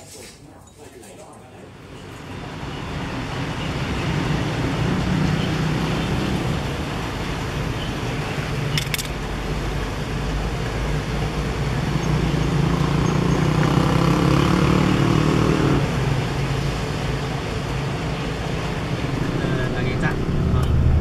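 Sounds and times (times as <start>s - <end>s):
vehicle engine and road noise: 1.7s - 21.0s.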